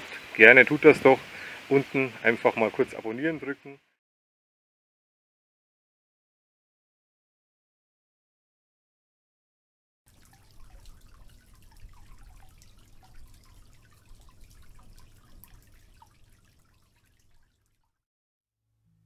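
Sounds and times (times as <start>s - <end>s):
water trickling over rocks: 0.0s - 3.8s, 10.1s - 18.0s.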